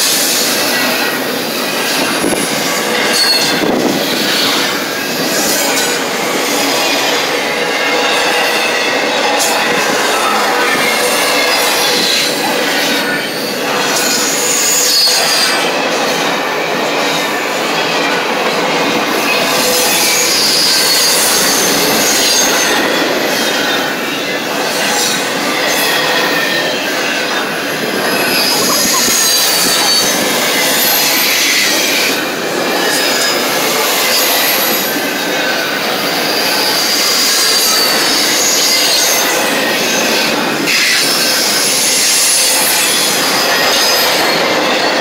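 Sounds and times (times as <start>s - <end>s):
train wheels rumbling on rail: 0.0s - 45.0s
high-pitched wheel squeals: 3.0s - 4.7s, 6.4s - 15.7s, 19.1s - 24.4s, 25.0s - 32.2s.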